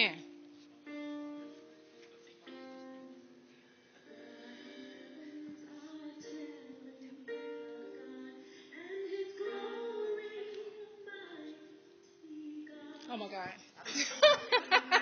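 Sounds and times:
woman singing: 0:04.1 - 0:13.8.

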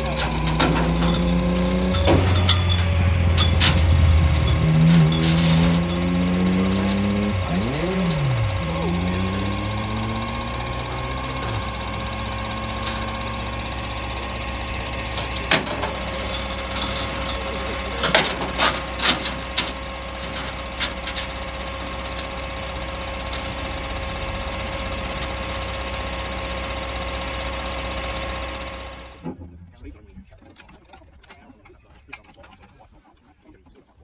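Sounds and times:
metallic clicks and clanks: 0:00.0 - 0:29.4, 0:30.4 - 0:32.8
truck engine whine and hum: 0:00.0 - 0:30.1.

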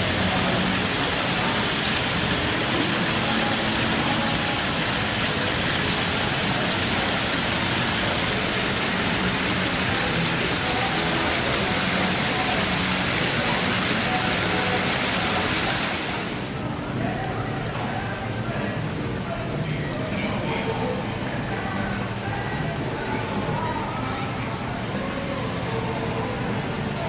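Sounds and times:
running water rushing: 0:00.0 - 0:16.7
faint voices: 0:00.0 - 0:27.0.

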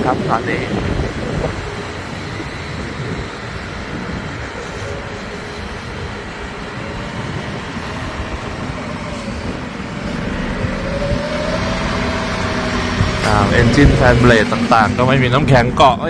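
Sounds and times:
drone of airport machinery: 0:00.0 - 0:16.0
wind buffeting microphone: 0:00.0 - 0:16.0
faint rising tone: 0:04.4 - 0:15.7.

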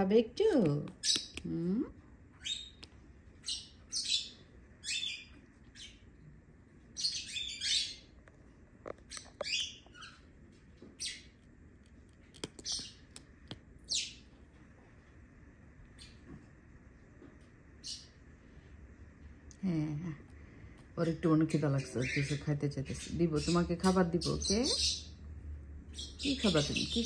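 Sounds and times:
bird chirping high-pitched: 0:02.4 - 0:06.0, 0:07.0 - 0:08.1, 0:09.1 - 0:10.3, 0:12.4 - 0:13.2, 0:13.9 - 0:14.2, 0:25.9 - 0:27.0.

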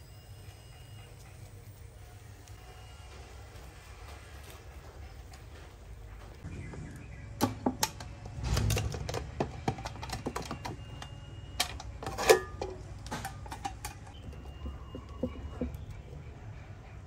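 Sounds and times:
metal tin clinking: 0:07.4 - 0:15.8.

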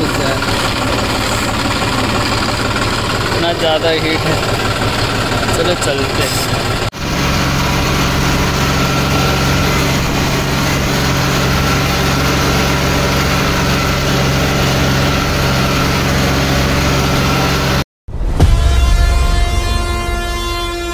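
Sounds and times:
tractor diesel engine running: 0:00.0 - 0:17.8
sustained horn-like tones: 0:18.4 - 0:20.9.

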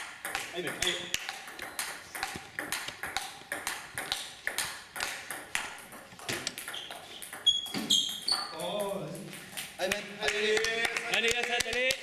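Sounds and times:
table tennis ball clicking: 0:00.2 - 0:08.6.

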